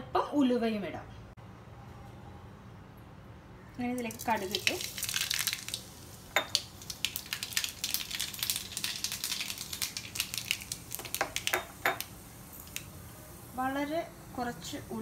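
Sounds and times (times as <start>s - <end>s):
mustard seeds popping in oil: 3.9s - 13.0s.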